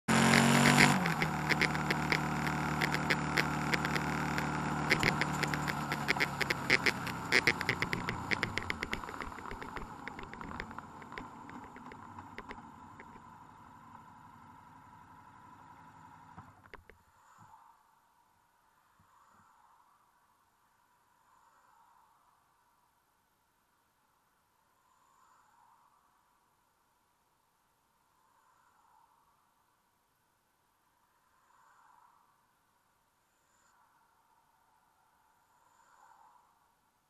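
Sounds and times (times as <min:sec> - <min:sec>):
engine: 0:00.0 - 0:17.7
rattling clicks: 0:00.1 - 0:13.3
road noise: 0:00.1 - 0:17.0.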